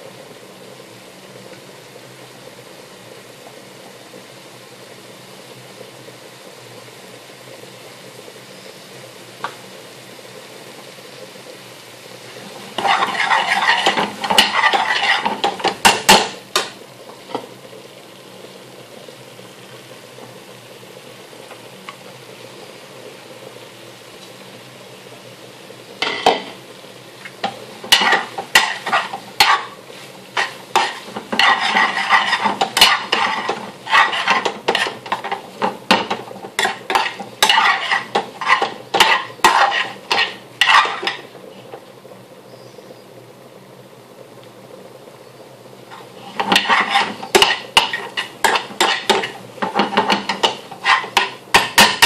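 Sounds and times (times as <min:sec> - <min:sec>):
low steady hiss: 0:00.0 - 0:52.0
metal spoon scraping pan: 0:12.8 - 0:16.3, 0:26.0 - 0:26.6, 0:27.4 - 0:29.8, 0:30.4 - 0:41.3, 0:45.9 - 0:52.0.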